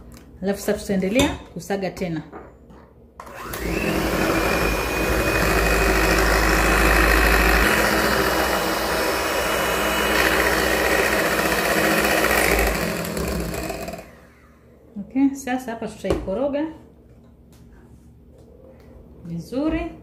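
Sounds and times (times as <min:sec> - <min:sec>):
electric hand mixer whining: 0:03.2 - 0:14.6.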